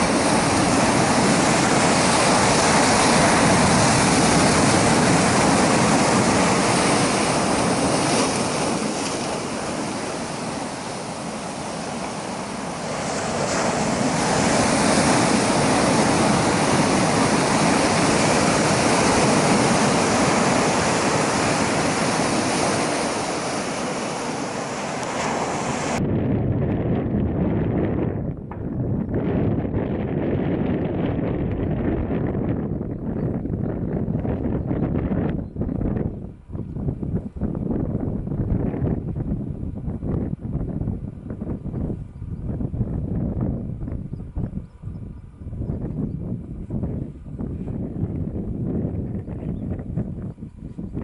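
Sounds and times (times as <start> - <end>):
surf breaking over rocks: 0.0 - 26.0
wind buffeting microphone: 0.0 - 51.0.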